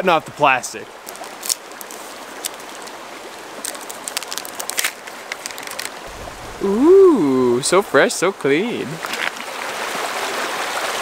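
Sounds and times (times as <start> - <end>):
mountain stream rushing: 0.0 - 11.0
plastic wrapping crinkling: 3.6 - 6.0.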